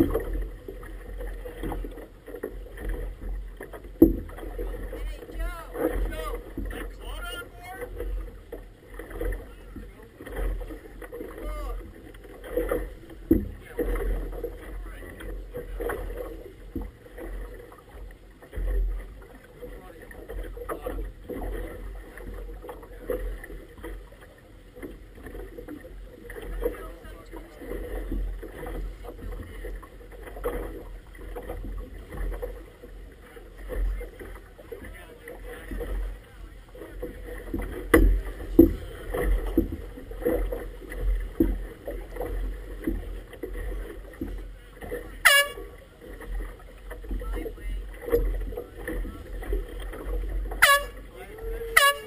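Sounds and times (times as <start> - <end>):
water slapping against inflatable boat: 0.0 - 52.0
pitch-bending tone: 50.6 - 51.0.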